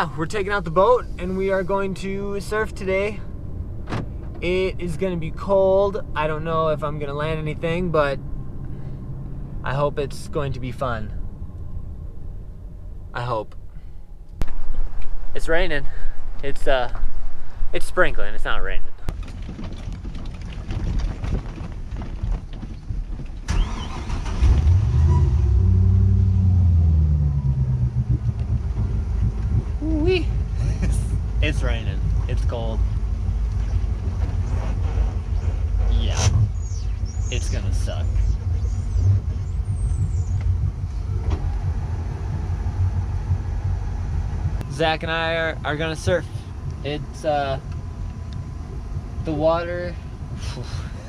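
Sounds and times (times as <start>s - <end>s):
road and wind rumble: 0.0s - 51.0s
boat engine starting and idling: 23.4s - 35.8s.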